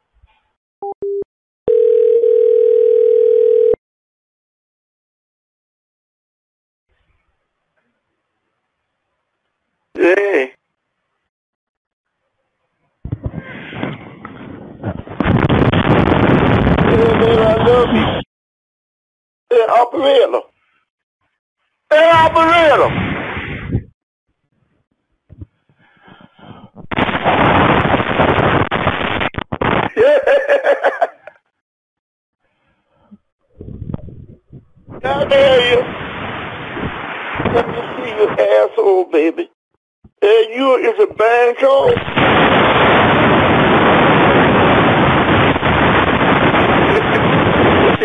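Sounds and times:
harsh noise burst over telephone: 26.9 - 30.1, 41.8 - 48.0.

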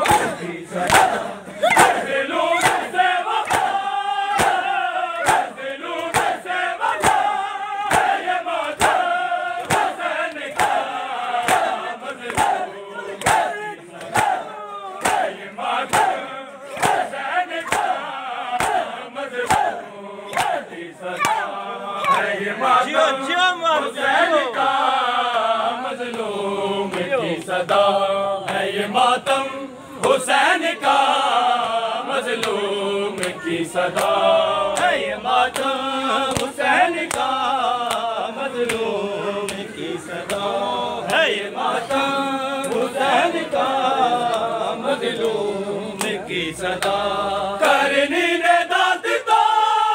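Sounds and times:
hands slapping chests: 0.0 - 2.0, 2.6 - 7.3, 7.9 - 12.6, 13.2 - 14.4, 15.0 - 15.3, 16.8 - 18.0, 18.6 - 19.7, 20.3 - 20.6, 21.2 - 22.3, 34.0 - 39.6, 45.2 - 47.0
men chanting in unison: 0.0 - 49.9.

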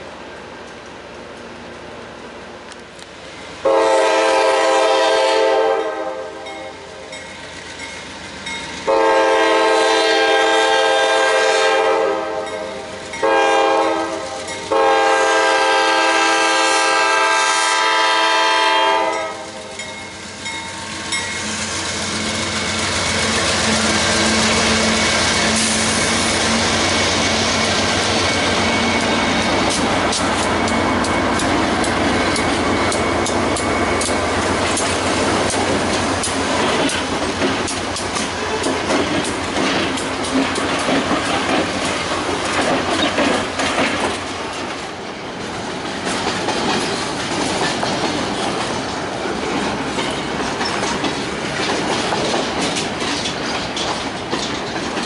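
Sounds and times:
locomotive air horn blasts: 3.6 - 7.0, 8.9 - 19.7
locomotive engine noise: 19.4 - 55.0
wheels clicking over rail joints: 22.1 - 55.0.

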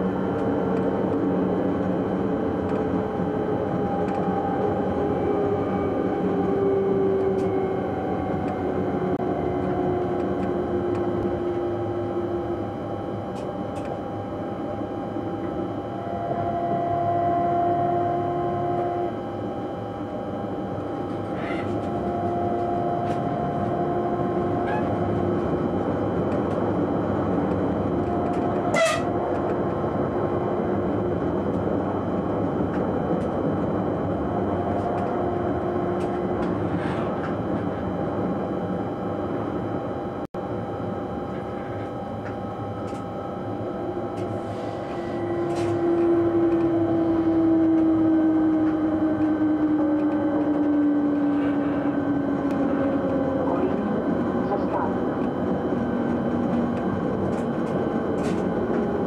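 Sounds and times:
wheel-on-rail rumble: 20.8 - 38.4.

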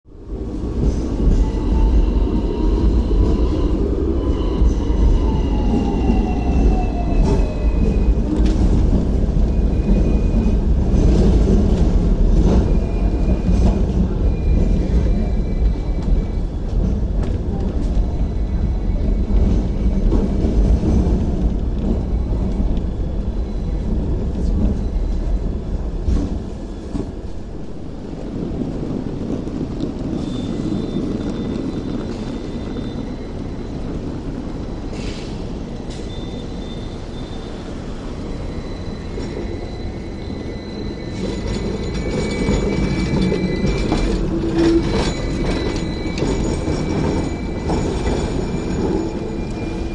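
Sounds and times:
tram rumbling: 0.0 - 49.9
faint high wheel squeal: 30.1 - 49.9.

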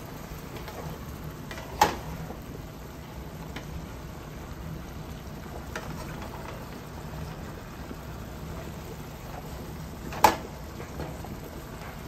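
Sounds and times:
meat sizzling in a skillet: 0.0 - 12.0.

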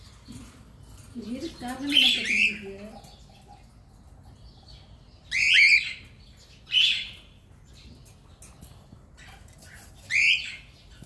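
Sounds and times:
cockatiels calling: 1.2 - 3.7, 5.2 - 7.4, 8.6 - 11.0.

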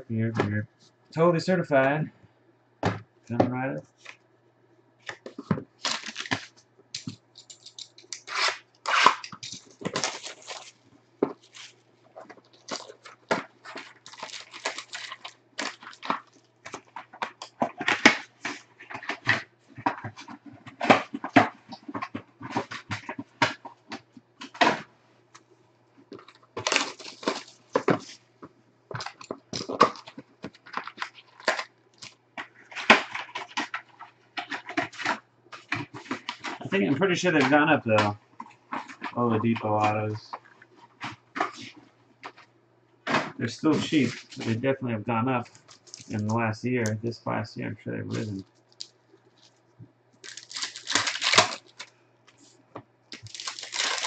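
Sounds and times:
foil packs crinkling: 5.1 - 23.6, 26.1 - 28.2, 28.9 - 42.4, 43.5 - 44.6, 45.4 - 46.3, 50.2 - 54.0.

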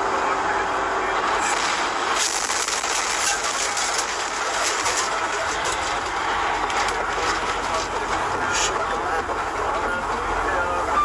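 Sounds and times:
truck road and engine drone: 0.0 - 11.0
debris clattering and crackling: 1.5 - 8.3.

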